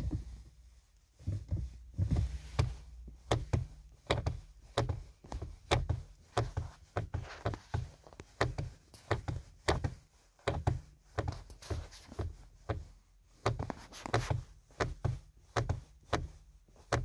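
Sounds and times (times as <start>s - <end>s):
car pedals knocking and clicking: 0.0s - 0.6s, 1.2s - 17.0s.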